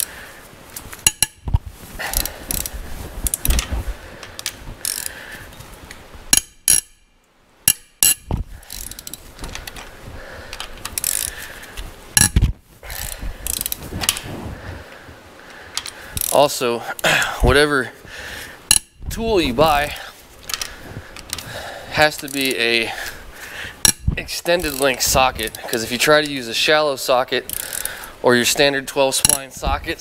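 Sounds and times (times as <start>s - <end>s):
ratchet wrench clicking: 1.0s - 1.4s, 2.1s - 3.6s, 4.4s - 5.2s, 6.3s - 7.0s, 7.7s - 9.2s, 10.6s - 11.3s, 12.2s - 13.8s, 15.8s - 16.4s, 22.2s - 22.6s, 23.8s - 25.6s, 27.5s - 28.0s.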